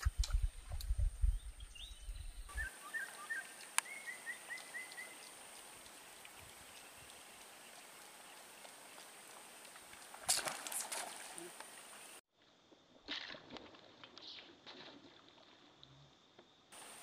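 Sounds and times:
low microphone rumble: 0:00.0 - 0:02.5.

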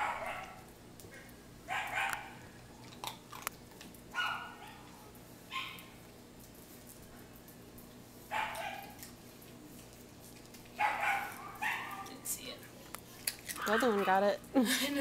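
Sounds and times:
dog barking: 0:00.0 - 0:00.6, 0:01.2 - 0:02.4, 0:04.1 - 0:05.9, 0:08.3 - 0:09.0, 0:10.8 - 0:12.2.

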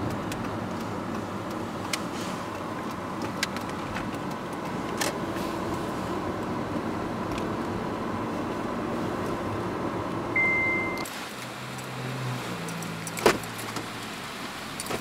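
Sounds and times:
car road and engine noise: 0:00.0 - 0:15.0
idling car engine hum: 0:00.0 - 0:15.0
short high beep: 0:10.4 - 0:11.1.

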